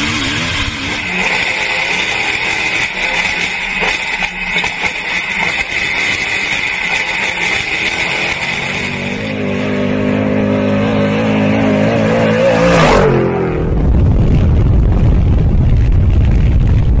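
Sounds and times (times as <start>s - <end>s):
vehicle engine revving: 0.0s - 14.4s
wind noise: 13.0s - 17.0s.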